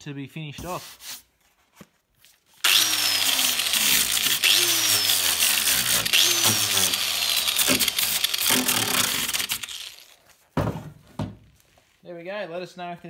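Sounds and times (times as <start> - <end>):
grinder motor whine: 2.6 - 10.2
angle grinder grinding: 2.6 - 10.4.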